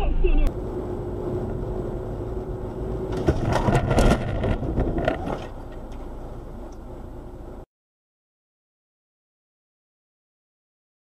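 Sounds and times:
car road noise with hum: 0.0s - 7.7s
car crash bangs and scraping: 3.1s - 5.9s.

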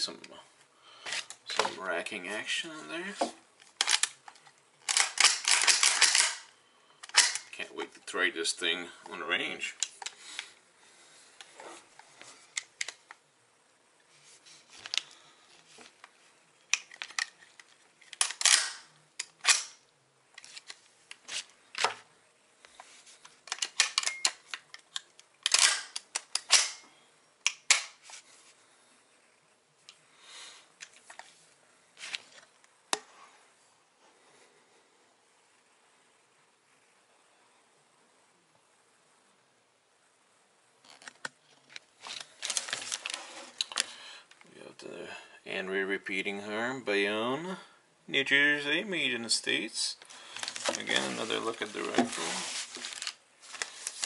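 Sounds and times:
rifle slide racking metallic clacks: 4.9s - 7.5s, 18.1s - 19.8s, 23.5s - 24.4s.

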